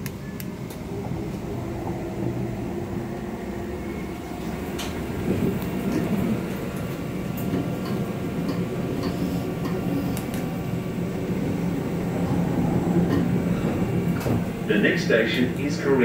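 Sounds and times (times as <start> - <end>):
train rumble and hum: 0.0 - 16.0
faint clicks: 6.9 - 10.5.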